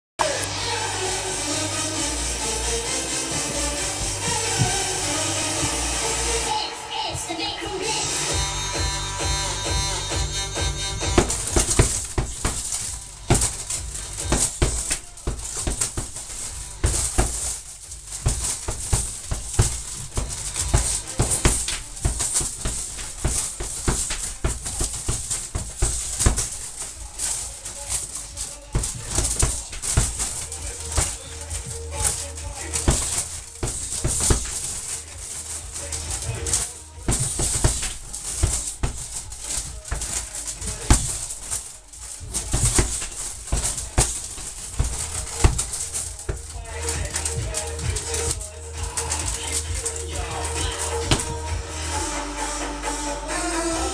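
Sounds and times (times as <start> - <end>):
punches on punching bag: 11.0 - 51.5.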